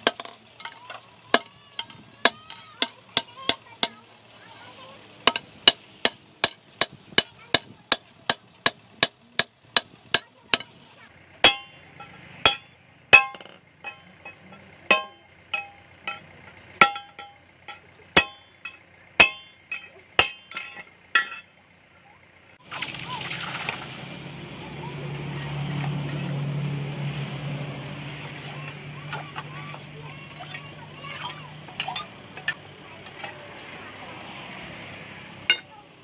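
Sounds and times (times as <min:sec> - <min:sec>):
hammer striking metal blade: 0:05.3 - 0:10.8, 0:11.4 - 0:21.5, 0:35.5 - 0:35.8.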